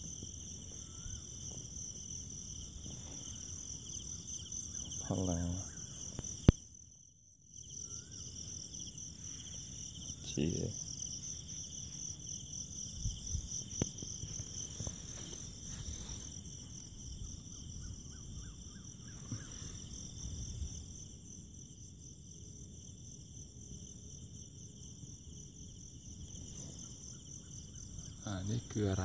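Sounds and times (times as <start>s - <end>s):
crickets and night insects chirring: 0.0s - 29.0s.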